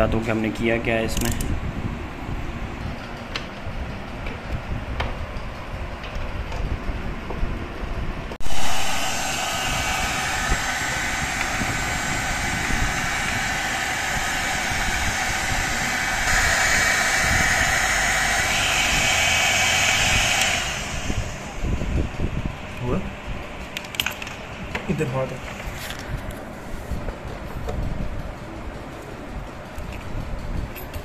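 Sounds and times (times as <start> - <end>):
heat gun switching on: 8.4 - 22.4
heat gun fan hiss: 8.4 - 23.7.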